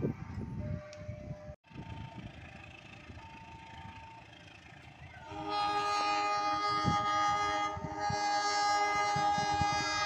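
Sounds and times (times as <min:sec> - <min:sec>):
diesel locomotive horn chord: 0:05.2 - 0:10.0.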